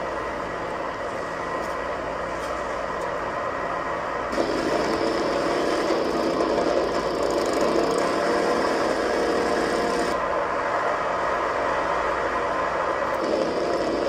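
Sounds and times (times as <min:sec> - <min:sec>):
motorcycle engine over speakers: 0:04.3 - 0:10.2, 0:13.1 - 0:14.0.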